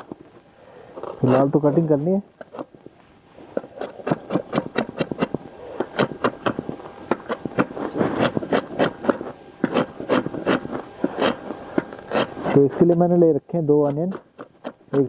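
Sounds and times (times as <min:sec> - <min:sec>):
knife chopping on wooden board: 0:03.8 - 0:06.6, 0:07.2 - 0:12.3.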